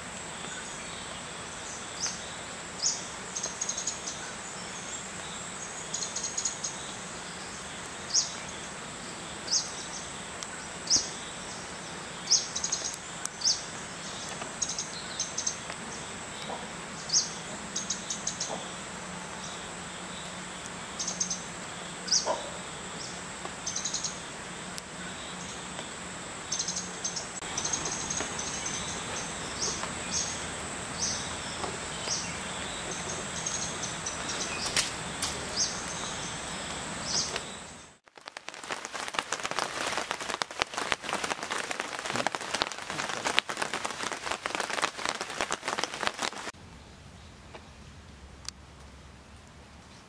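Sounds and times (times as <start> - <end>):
raindrops on leaves: 0.0 - 46.8.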